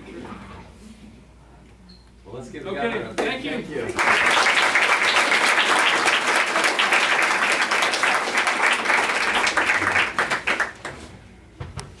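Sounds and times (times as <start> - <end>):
audience applauding: 3.9 - 11.0.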